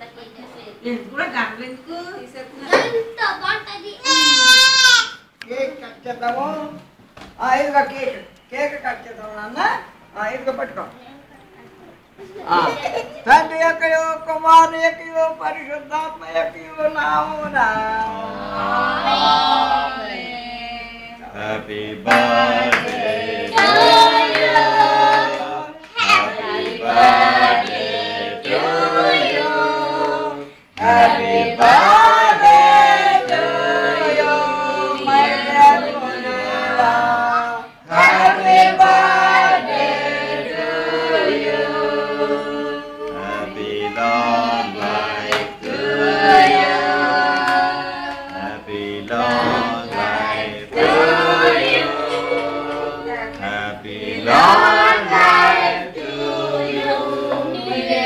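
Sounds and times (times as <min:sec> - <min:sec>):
group singing: 0:15.8 - 0:58.0.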